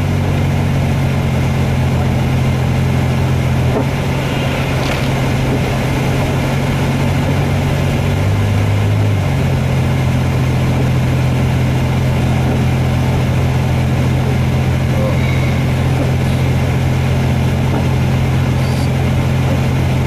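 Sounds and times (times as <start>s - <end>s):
car engine drone: 0.0s - 20.0s
tyre noise: 3.4s - 8.0s.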